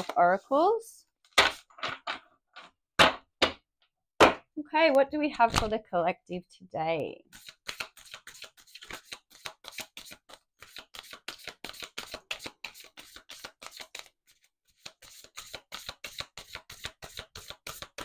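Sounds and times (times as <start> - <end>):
cards being shuffled: 7.3 - 18.0.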